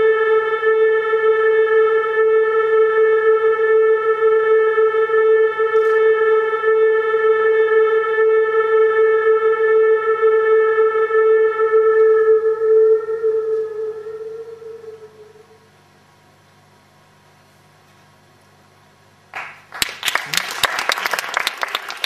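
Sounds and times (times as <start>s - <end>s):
sustained drone tone: 0.0s - 15.7s.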